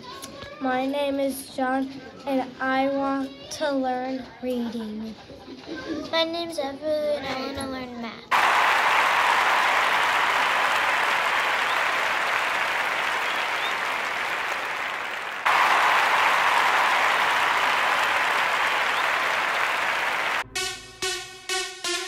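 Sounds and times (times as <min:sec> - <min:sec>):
crowd applause: 0:08.3 - 0:20.4
electronic music: 0:20.4 - 0:22.0.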